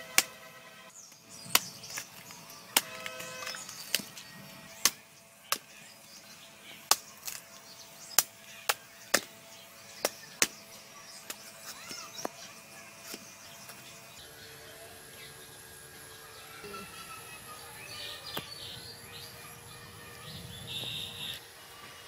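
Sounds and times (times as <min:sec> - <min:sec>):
knife chopping fruit husks: 0:01.1 - 0:05.9, 0:06.8 - 0:13.8, 0:18.2 - 0:18.6.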